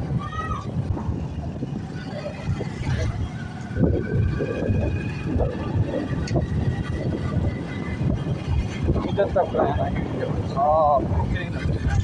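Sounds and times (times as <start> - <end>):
tractor diesel engine passing: 1.1 - 10.6.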